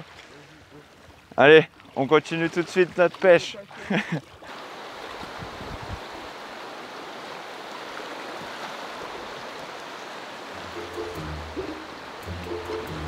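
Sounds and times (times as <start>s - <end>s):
water rushing: 0.0s - 13.0s
background music: 10.5s - 13.0s.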